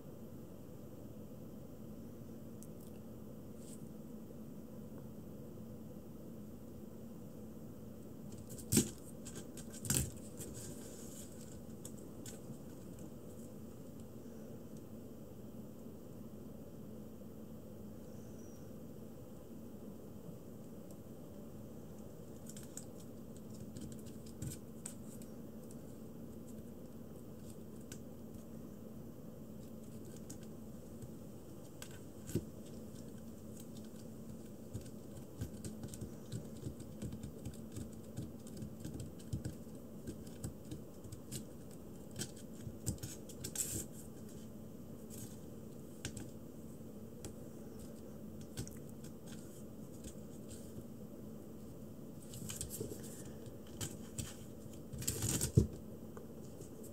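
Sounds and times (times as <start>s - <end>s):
claws scratching cardboard: 8.3s - 13.4s, 29.6s - 46.4s.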